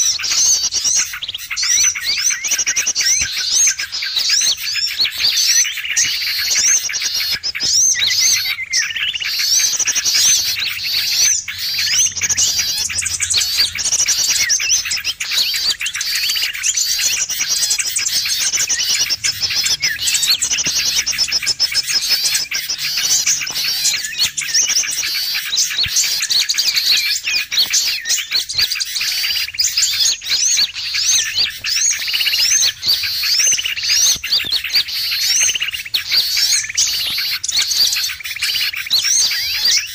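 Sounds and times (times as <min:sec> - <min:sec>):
songbirds chirping and trilling: 0:00.0 - 0:39.9.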